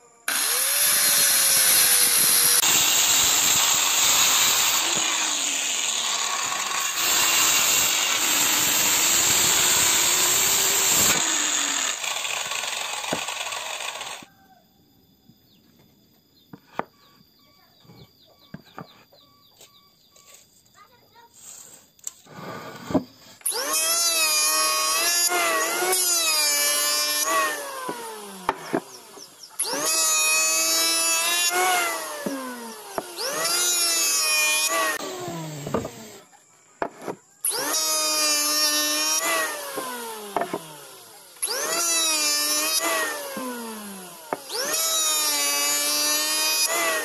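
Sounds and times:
electric hand planer shaving wood: 0.0s - 14.2s, 23.5s - 36.2s, 37.5s - 47.0s.

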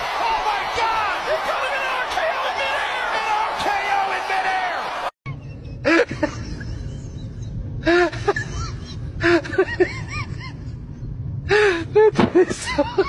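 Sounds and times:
steady low rumble: 5.3s - 13.0s.

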